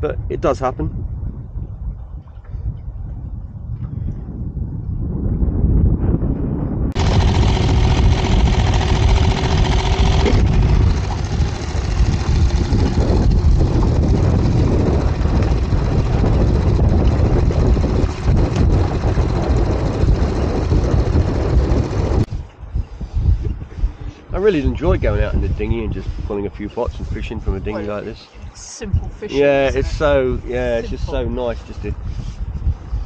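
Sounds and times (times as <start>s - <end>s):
wind buffeting microphone: 0.0s - 33.0s
steady humming tone: 7.0s - 25.0s.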